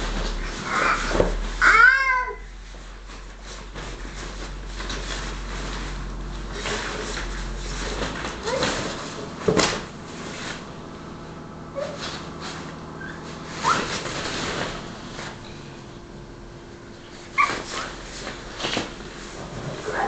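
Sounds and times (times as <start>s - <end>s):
nylon fabric rustling: 11.7s - 15.7s, 16.9s - 20.0s.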